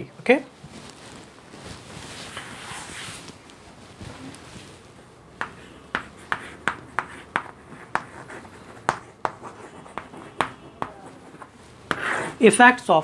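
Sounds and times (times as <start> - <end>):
chalk tapping and scraping: 2.3 - 3.1, 5.4 - 12.4.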